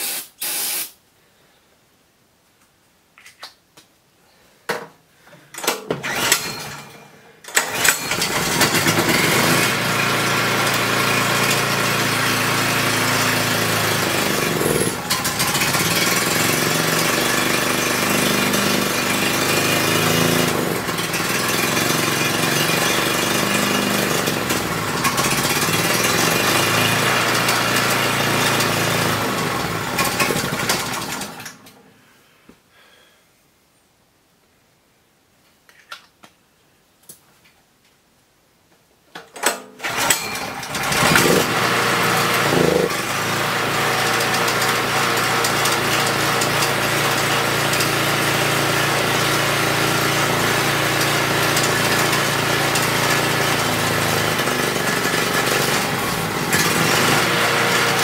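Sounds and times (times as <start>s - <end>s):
generator engine cranking: 5.6s - 31.8s, 39.5s - 58.0s
generator engine running: 6.0s - 6.9s, 7.6s - 31.7s, 39.8s - 58.0s.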